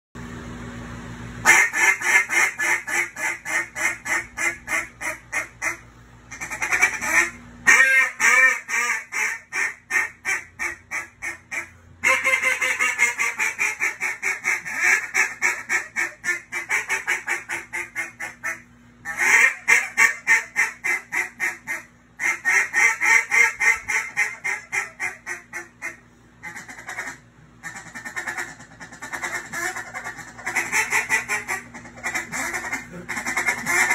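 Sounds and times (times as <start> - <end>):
duck call rapid quacks: 1.4 - 33.9.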